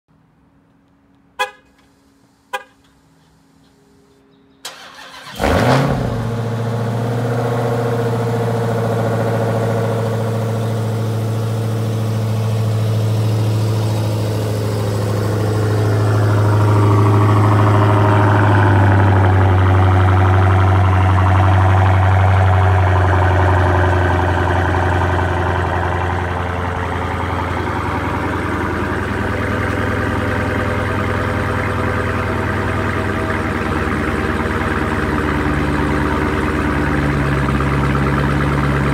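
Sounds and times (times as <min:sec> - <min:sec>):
car engine starting and idling: 0:00.4 - 0:38.9
car horn chirps: 0:01.3 - 0:04.2.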